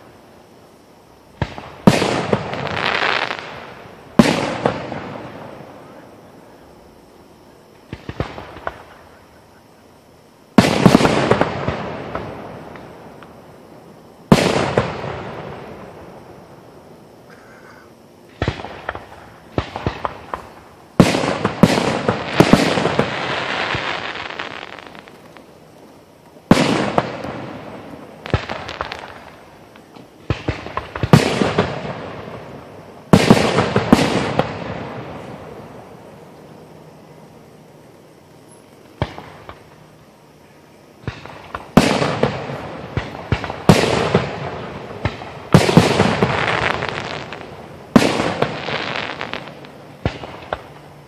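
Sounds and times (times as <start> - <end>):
sharp firework pops: 1.4 - 3.6, 4.2 - 5.2, 7.9 - 9.2, 18.3 - 25.5, 26.2 - 32.4, 38.9 - 39.8, 41.0 - 50.8
fireworks bangs with echo: 1.4 - 6.6, 10.5 - 13.3, 14.3 - 16.0, 18.3 - 25.4, 26.4 - 36.0, 41.0 - 50.8.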